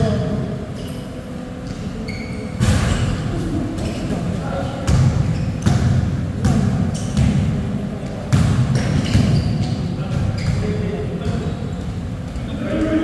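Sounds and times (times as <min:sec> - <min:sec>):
basketball bouncing on wooden floor: 0:08.3 - 0:10.6.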